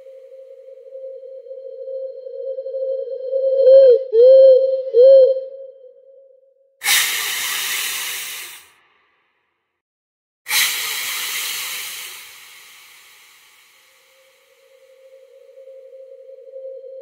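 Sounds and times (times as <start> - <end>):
loud hisses: 6.8 - 8.7, 10.5 - 14.6.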